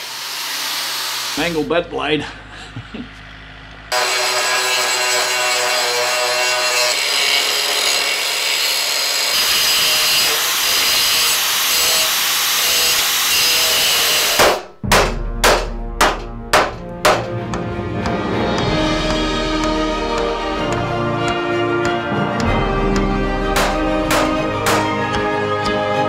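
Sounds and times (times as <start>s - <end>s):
angle grinder cutting metal: 0.0s - 1.6s, 3.9s - 14.5s, 22.4s - 25.0s.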